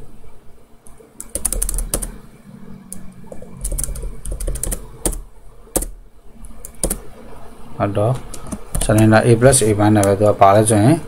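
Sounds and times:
computer keyboard keystrokes: 1.2s - 2.1s, 2.9s - 5.9s, 6.6s - 7.0s, 8.2s - 9.1s.

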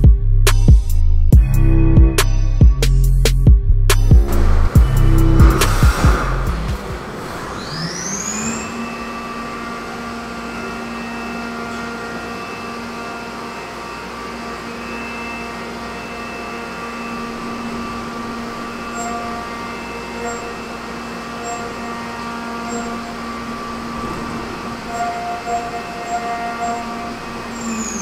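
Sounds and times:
machine spindle whining: 4.0s - 28.0s
coolant spraying hiss: 4.3s - 8.1s.

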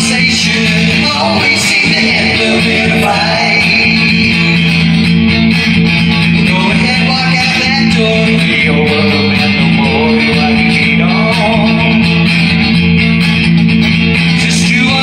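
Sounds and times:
man singing: 0.0s - 5.0s, 6.4s - 12.6s, 14.3s - 15.0s
electric guitar chords: 0.0s - 15.0s.

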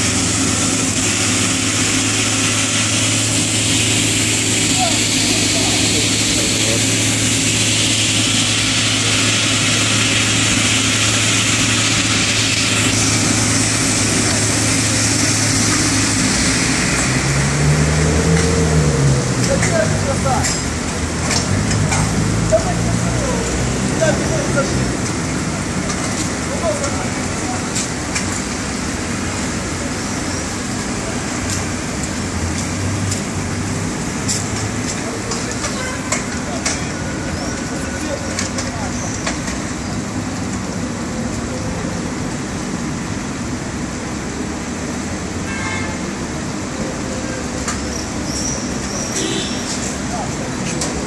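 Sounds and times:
fire engine motor humming: 0.0s - 45.4s
hiss: 0.2s - 17.1s.

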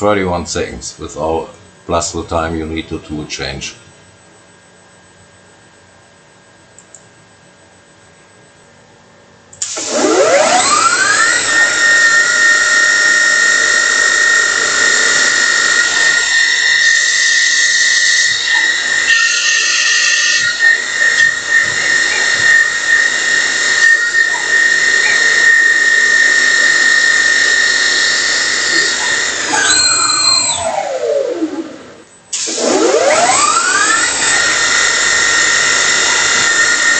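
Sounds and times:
lathe spindle whine: 9.7s - 36.9s.

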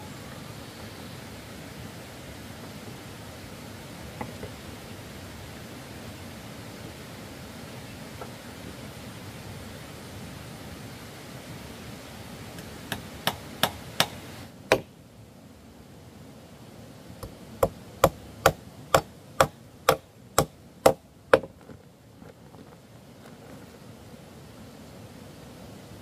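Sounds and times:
hammer driving nails into wood: 12.9s - 14.9s, 17.6s - 21.5s.

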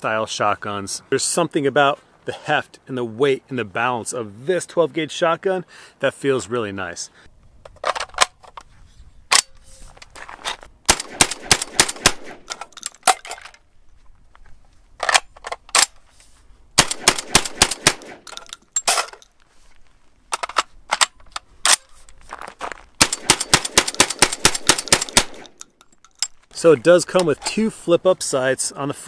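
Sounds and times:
shotgun rapid shots: 10.9s - 12.5s, 16.8s - 18.3s, 23.0s - 25.6s.

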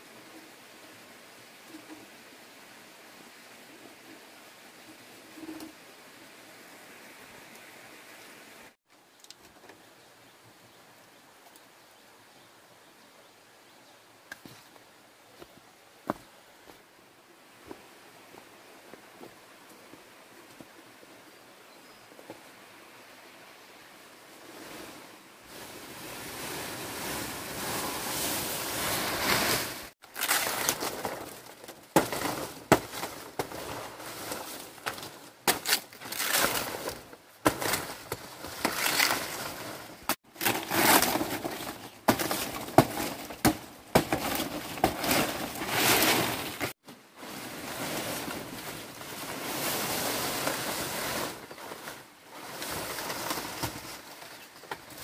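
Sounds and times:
palm leaves rustling: 24.1s - 55.0s
leaves snapping: 29.2s - 46.7s.

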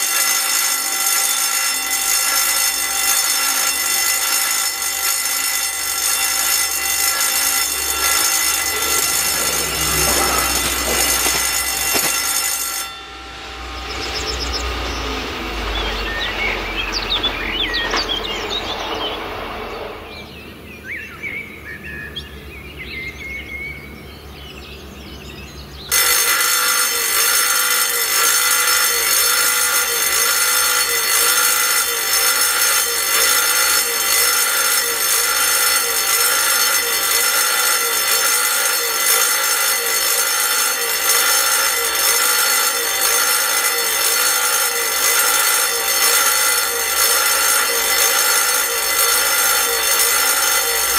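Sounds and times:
level crossing warning bell: 0.0s - 20.3s, 22.3s - 50.9s
train rumble: 6.4s - 12.6s
birdsong: 13.8s - 25.9s.

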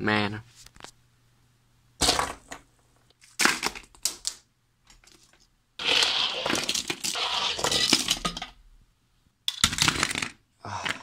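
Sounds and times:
plastic toy trains clattering: 3.5s - 8.6s, 9.5s - 10.4s.

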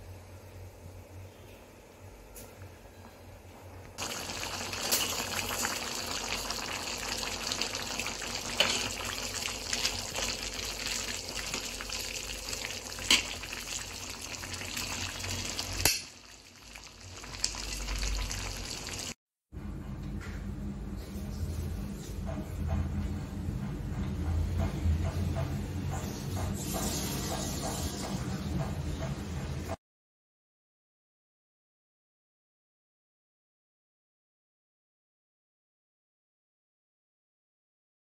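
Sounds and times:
curry sizzling and bubbling: 4.0s - 19.2s.

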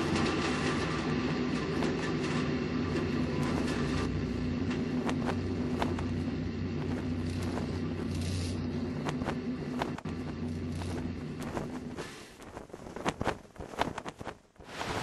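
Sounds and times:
low engine drone: 0.0s - 12.4s
scattered clicks: 3.0s - 6.2s, 6.8s - 14.4s.

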